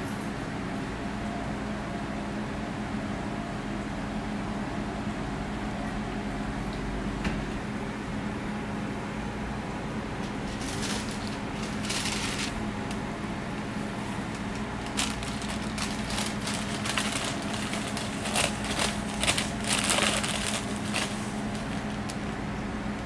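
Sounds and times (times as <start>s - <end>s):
steady low hum: 0.0s - 23.0s
paper wrapper rustling: 10.3s - 13.0s, 13.8s - 22.2s.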